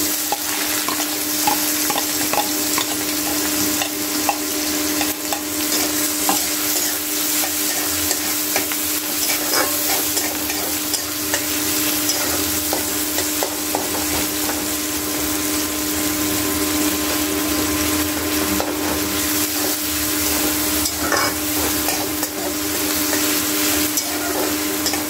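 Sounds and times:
onion sizzling in hot oil: 0.0s - 25.0s
metal spatula scraping: 5.0s - 11.4s, 20.3s - 25.0s.

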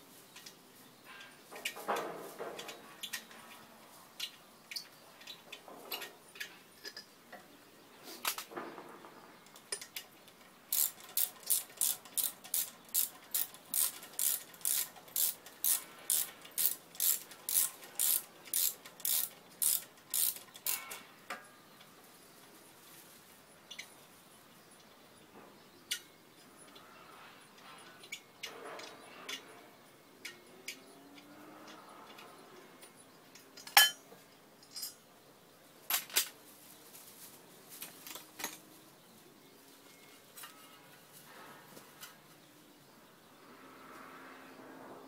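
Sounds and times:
ratchet wrench clicking: 10.7s - 20.9s.

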